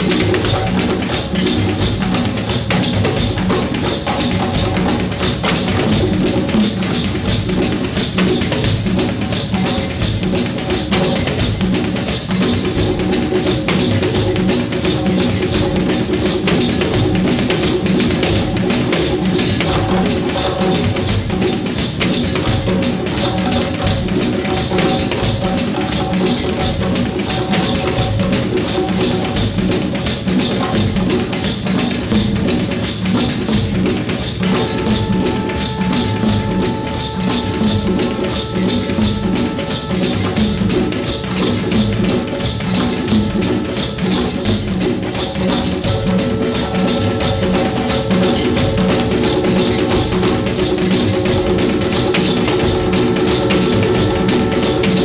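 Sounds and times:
drums and percussion rhythm: 0:00.0 - 0:55.0
held instrument tones: 0:34.5 - 0:55.0.

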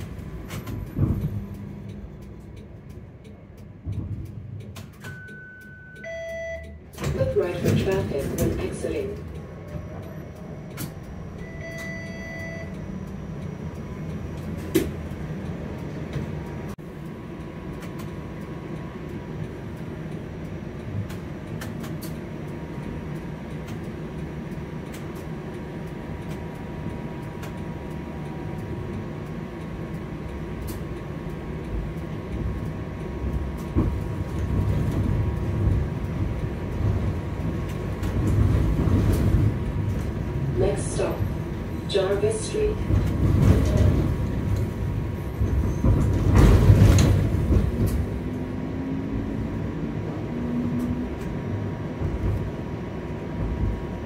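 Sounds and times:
streetcar wheels rumbling: 0:00.0 - 0:54.0
short beep: 0:05.0 - 0:06.8, 0:11.4 - 0:12.9.

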